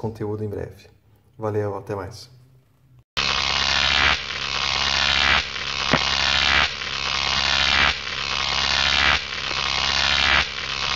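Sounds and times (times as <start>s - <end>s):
dense noisy electronic sound: 3.2s - 10.9s
single click: 5.9s - 6.1s.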